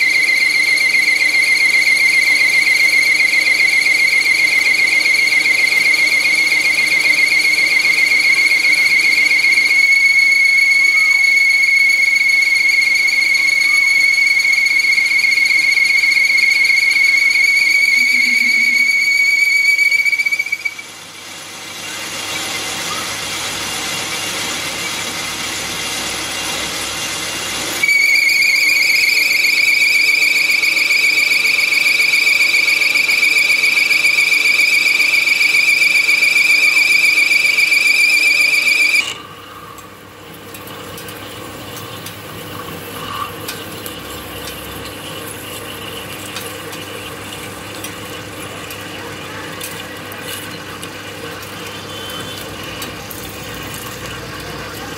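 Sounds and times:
high-pitched tool squeal: 0.0s - 21.0s, 27.8s - 39.8s
metal lathe running: 21.8s - 39.8s.

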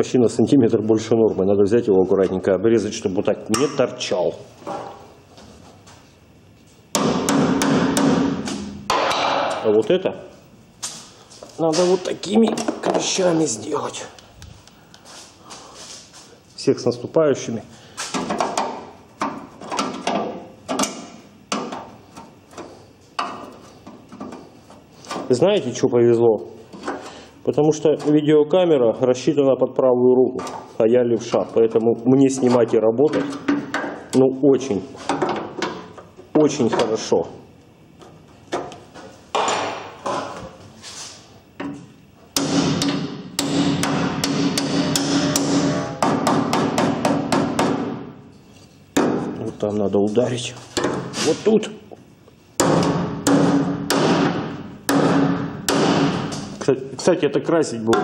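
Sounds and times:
hammer striking sheet steel: 6.9s - 9.6s, 42.4s - 48.0s
sharp metal knocks: 6.9s - 9.6s, 42.4s - 48.0s, 52.6s - 56.5s.

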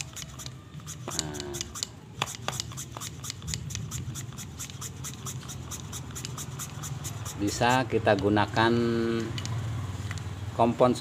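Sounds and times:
sandpaper scraping inside cylinder: 0.0s - 8.1s.

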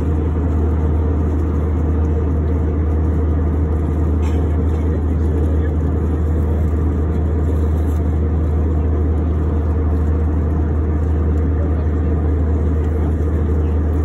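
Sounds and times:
jet airliner cabin drone: 0.0s - 14.0s.

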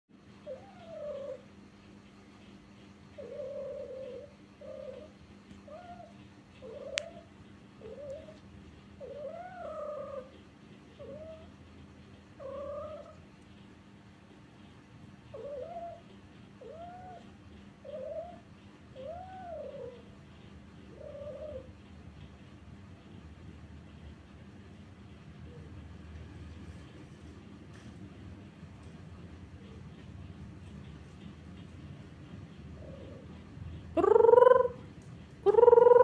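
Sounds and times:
cat yowling: 12.4s - 13.2s, 15.3s - 20.1s, 34.0s - 34.8s, 35.5s - 36.0s.

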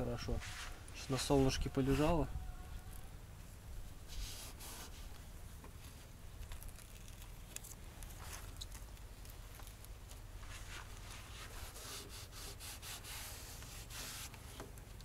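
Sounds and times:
hands rustling and scraping rubber seal: 4.0s - 15.0s.

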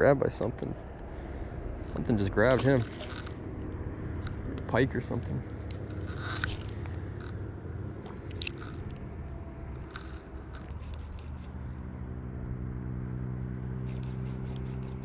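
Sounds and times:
low hum: 0.0s - 15.0s
fishing reel cranking: 2.8s - 3.4s, 5.9s - 7.4s, 8.2s - 9.0s, 9.8s - 11.6s.

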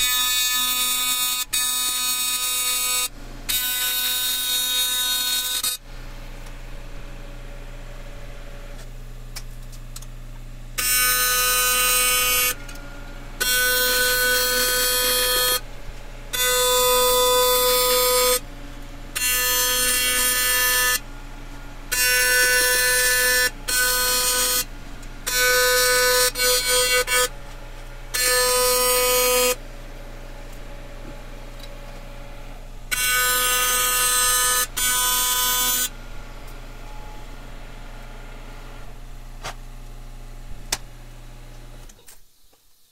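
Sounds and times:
welding arc buzzing: 0.0s - 7.0s, 9.9s - 29.7s, 30.3s - 37.6s.

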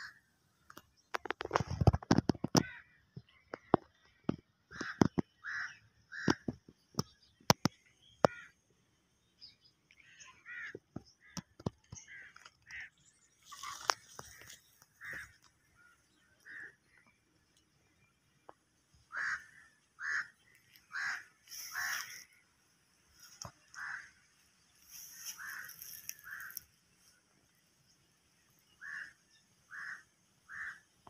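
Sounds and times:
crows cawing: 2.4s - 3.0s, 4.7s - 6.6s, 8.2s - 8.6s, 10.0s - 12.9s, 13.5s - 17.1s, 19.0s - 22.4s, 23.2s - 26.7s, 28.8s - 30.9s.

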